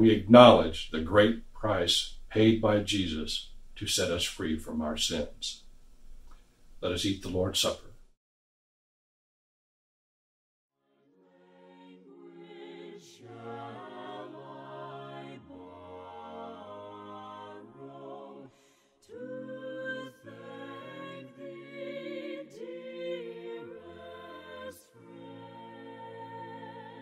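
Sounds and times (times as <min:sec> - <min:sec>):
a cappella hymn singing: 0:11.2 - 0:27.0.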